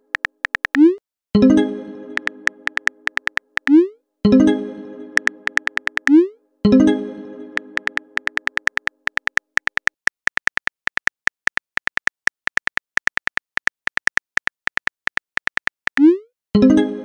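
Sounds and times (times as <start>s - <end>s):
phone keyboard typing clicks: 0.0s - 1.0s, 2.2s - 3.9s, 5.2s - 6.3s, 7.6s - 16.1s
message chime ringing: 0.8s - 8.4s.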